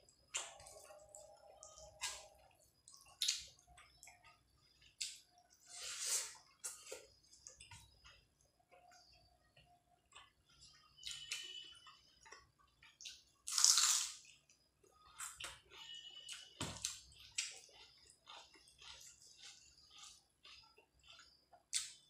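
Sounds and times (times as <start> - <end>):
wet chewing and lip smacks: 16.8 - 22.0.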